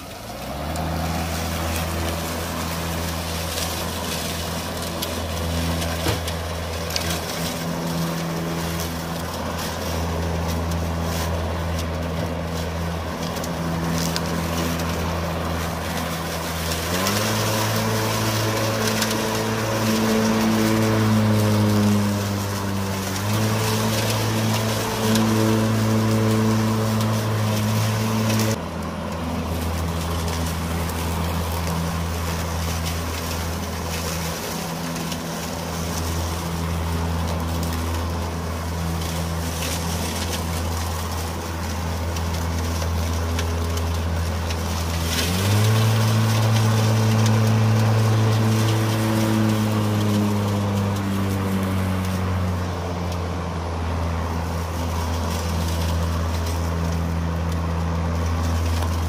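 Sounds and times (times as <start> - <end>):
lawn mower humming: 0.0 - 59.0.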